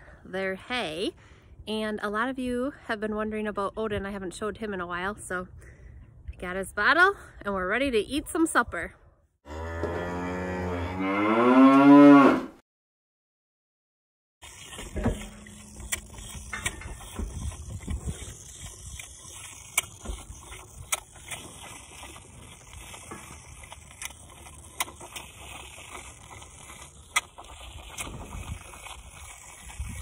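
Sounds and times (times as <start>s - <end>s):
calf sucking milk bottle: 14.4s - 30.0s.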